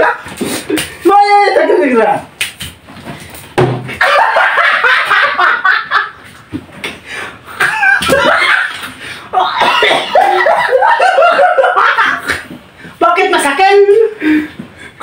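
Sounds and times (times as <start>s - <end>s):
plastic jug thumping head: 3.6s - 4.0s
hearty laughter: 4.0s - 6.3s, 7.5s - 12.6s.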